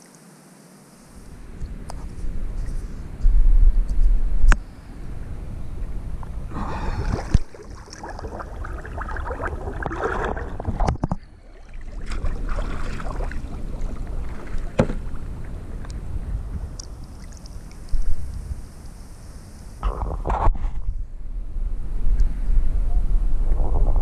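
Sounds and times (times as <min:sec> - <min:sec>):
water sloshing and splashing: 0:06.2 - 0:18.3.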